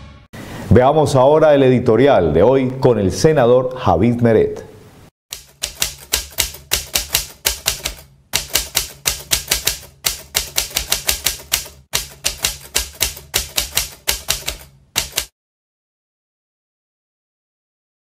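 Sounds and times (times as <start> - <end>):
typewriter keystroke clicks: 5.3 - 15.3.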